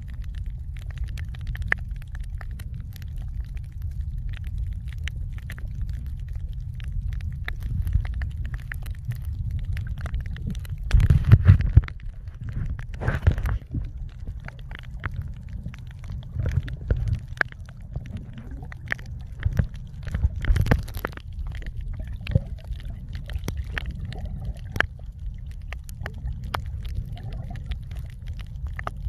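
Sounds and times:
underwater clicks and crackles: 0.0 - 29.0
underwater rumbling wash: 0.0 - 29.0
water gurgling: 0.0 - 29.0.

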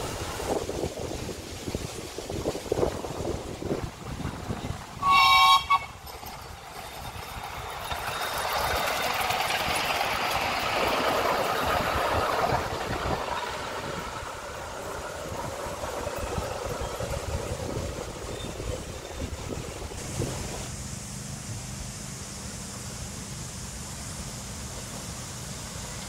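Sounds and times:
miniature train running on track: 0.0 - 26.0
steam locomotive whistle: 5.0 - 6.1.

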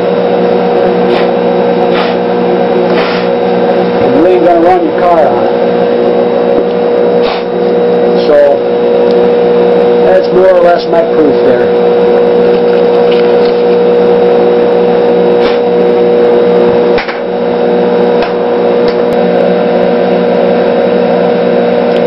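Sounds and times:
battery charger humming: 0.0 - 22.0.

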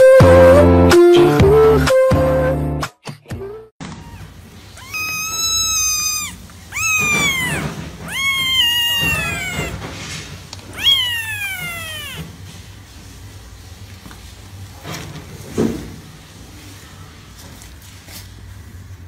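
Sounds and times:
kitten meowing: 3.9 - 9.9, 10.7 - 12.3.

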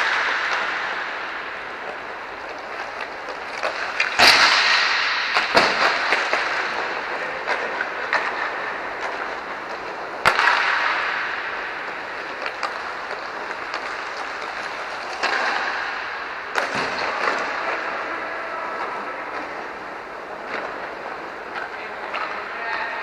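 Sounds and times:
stick hitting puck cracks: 0.0 - 18.1.

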